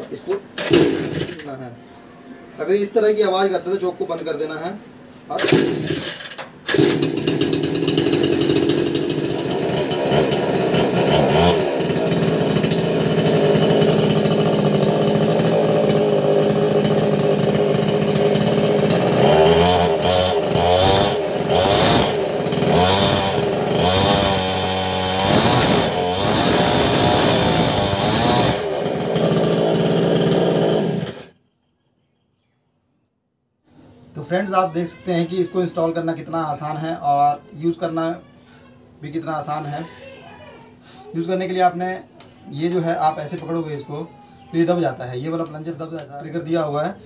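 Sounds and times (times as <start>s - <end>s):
chainsaw engine revving: 0.6s - 1.5s, 5.3s - 31.4s
recoil starter pull: 0.6s - 1.6s, 5.4s - 31.3s.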